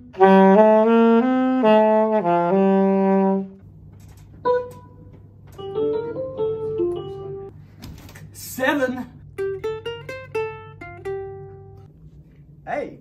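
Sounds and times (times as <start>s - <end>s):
alto saxophone phrase: 0.0s - 3.6s.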